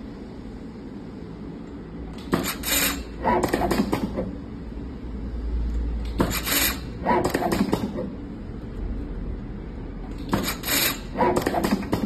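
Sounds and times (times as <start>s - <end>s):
machine whirring and rubbing: 2.1s - 4.5s, 6.0s - 8.4s, 10.0s - 12.0s
wrapping machine hiss: 2.2s - 4.0s, 6.2s - 7.6s, 10.3s - 12.0s.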